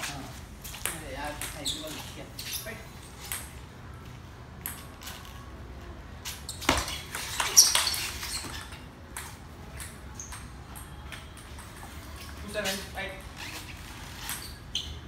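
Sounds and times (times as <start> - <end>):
shoes squeaking on floor: 0.0 - 3.5, 6.2 - 15.0.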